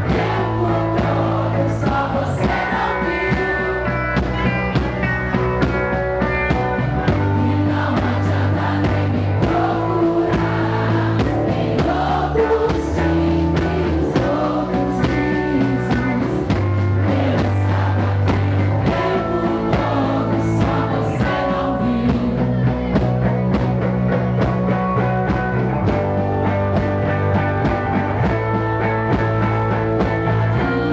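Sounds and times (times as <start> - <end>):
rock band playing: 0.0 - 30.9
person singing: 7.1 - 23.3, 30.4 - 30.9.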